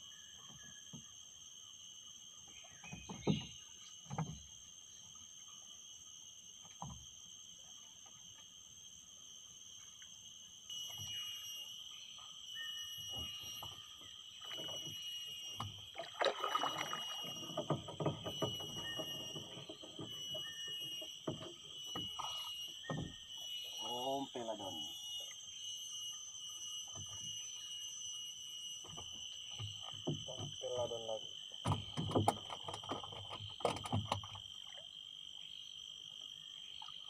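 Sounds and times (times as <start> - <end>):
steady high-pitched whine: 9.5 - 32.3.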